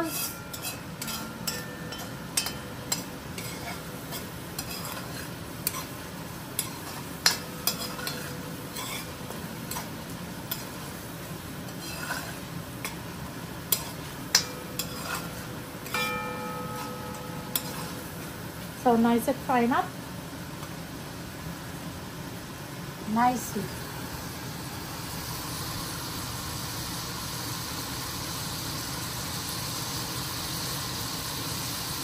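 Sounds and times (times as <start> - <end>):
metal spoon scraping a pot: 0.0 - 6.0, 6.6 - 11.0, 11.6 - 13.0, 13.7 - 18.2
curry sizzling in a pot: 0.0 - 32.0.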